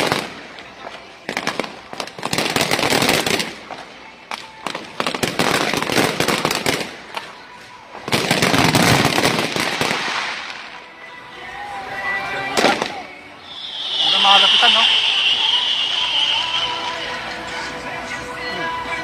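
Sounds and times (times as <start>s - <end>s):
fireworks popping and crackling: 0.0s - 10.9s, 12.5s - 18.0s.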